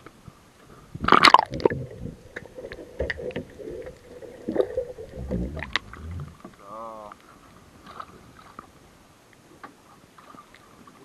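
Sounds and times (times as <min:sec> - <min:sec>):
underwater gurgling and bubbling: 0:00.9 - 0:06.6
water splashing: 0:01.0 - 0:08.8.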